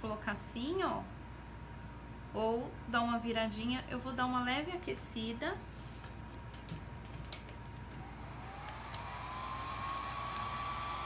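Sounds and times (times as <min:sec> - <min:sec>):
heat gun fan whine: 0:05.7 - 0:11.0.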